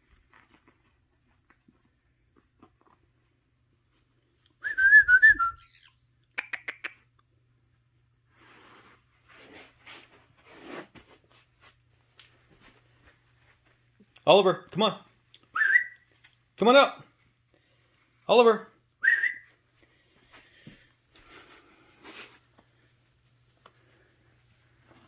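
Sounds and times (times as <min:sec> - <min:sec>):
parrot warbling whistle: 0:05.2 - 0:06.0
parrot sharp clicks: 0:06.3 - 0:07.0.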